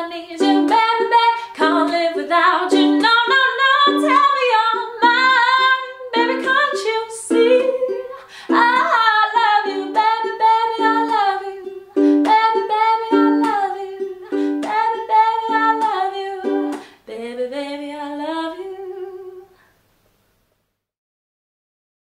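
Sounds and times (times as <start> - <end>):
ukulele strumming chords: 0.0 - 16.9
woman singing: 0.0 - 19.6.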